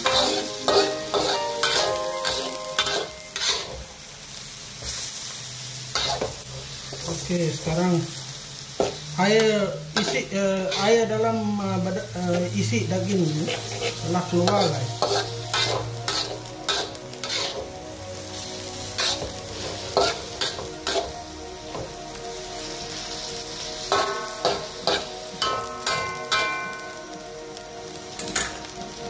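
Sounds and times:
spatula scraping metal wok: 0.0 - 3.8, 5.9 - 6.4, 8.8 - 11.2, 13.2 - 17.7, 18.3 - 21.2, 23.8 - 27.0
meat sizzling: 0.0 - 29.0.

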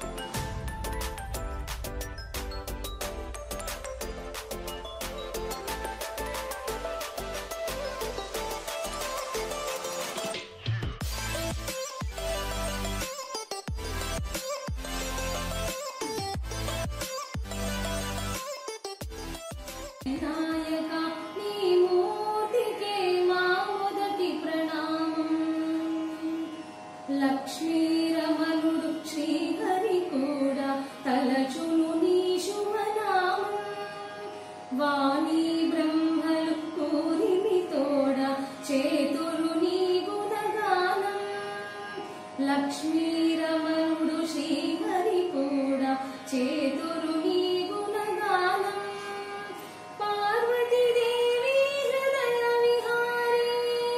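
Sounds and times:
woman singing: 20.1 - 53.9.

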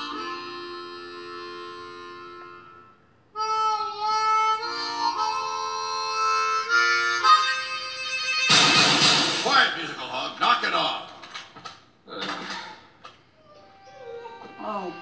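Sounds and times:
harmonica playing held chords: 0.0 - 9.4, 13.4 - 15.0.

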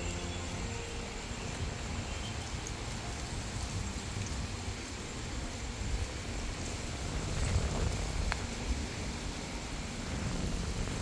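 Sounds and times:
background music: 0.0 - 4.9
outdoor background hiss and rumble: 0.0 - 11.0.

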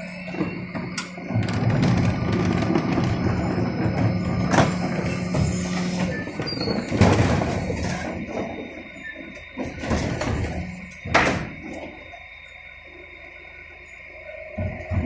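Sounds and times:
hydraulic bin lifter: 0.0 - 12.4.

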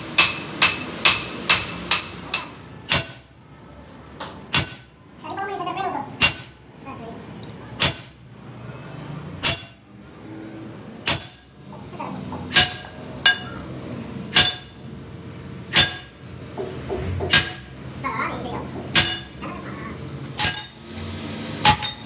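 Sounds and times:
hammer striking steel: 0.1 - 3.5, 4.5 - 5.2, 6.2 - 6.8, 7.8 - 8.4, 9.4 - 10.1, 11.0 - 11.7, 12.5 - 13.7, 14.3 - 15.0, 15.7 - 18.0, 18.9 - 19.4, 20.4 - 21.0, 21.6 - 22.0.

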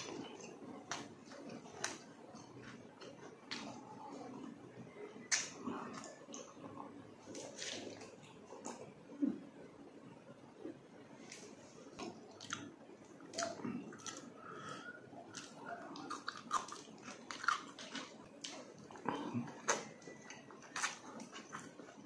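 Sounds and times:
person chewing with mouth smacks: 11.3 - 22.0.

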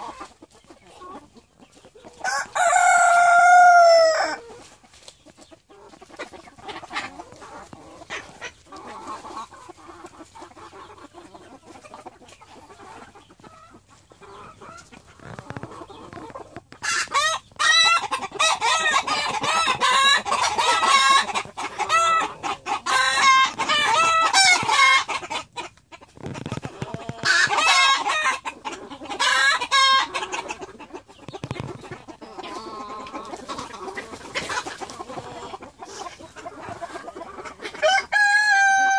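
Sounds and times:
chickens clucking: 0.0 - 38.9
loud crowing: 2.2 - 4.4, 37.8 - 38.9.

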